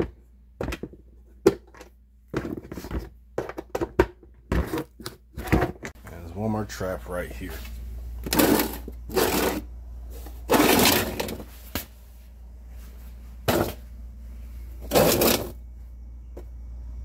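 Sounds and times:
plastic box scraping on concrete: 8.2s - 9.7s, 10.4s - 11.5s, 14.8s - 15.6s.

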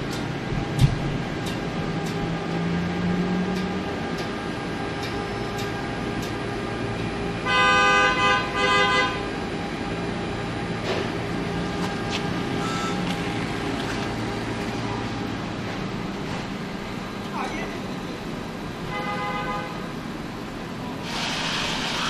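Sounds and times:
steady machinery hum: 0.0s - 22.0s
car horn honking: 7.4s - 9.3s, 18.9s - 19.9s.

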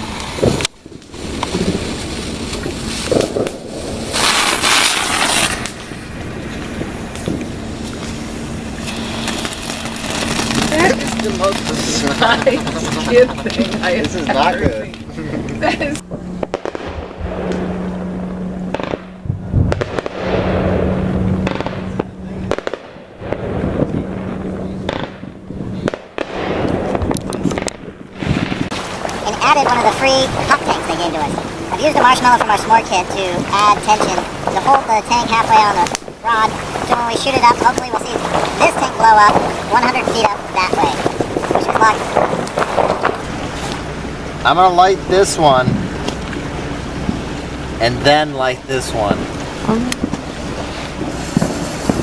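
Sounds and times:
firework spraying sparks hiss: 0.0s - 13.8s, 24.9s - 43.8s, 50.0s - 52.0s
steady low hum: 0.0s - 52.0s.

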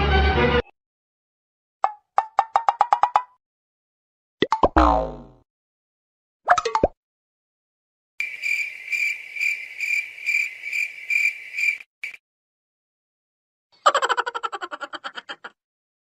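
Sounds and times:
cartoon sound effect: 4.4s - 5.4s
cricket chirping trill: 8.2s - 12.2s.

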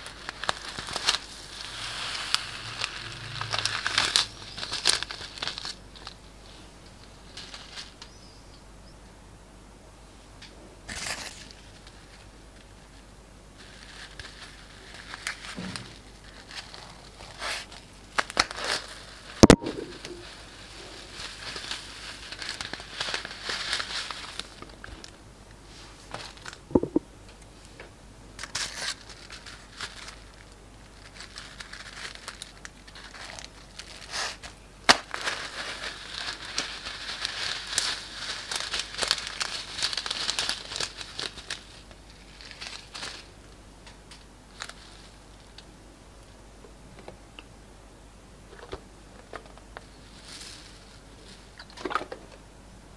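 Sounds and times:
foam beads pouring: 0.0s - 5.8s
plastic bags crinkling: 0.0s - 6.2s, 13.6s - 25.2s, 28.4s - 43.4s.

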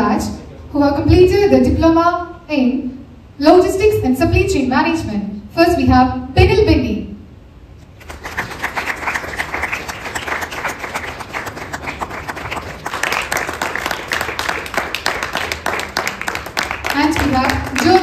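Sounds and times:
audience applauding: 8.0s - 18.0s.

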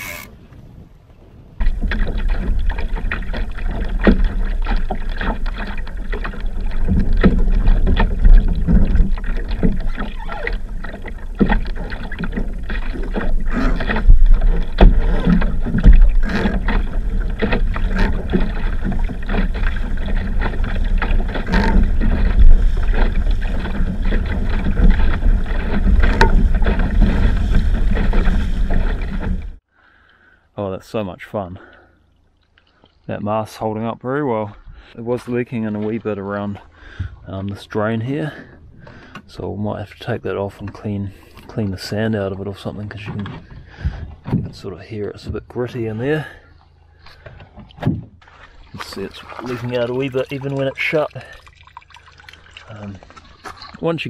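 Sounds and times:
boat hull knocking: 1.6s - 29.6s, 43.0s - 45.4s
water slapping against boat hull: 1.6s - 29.6s, 40.0s - 45.5s, 47.0s - 54.0s.

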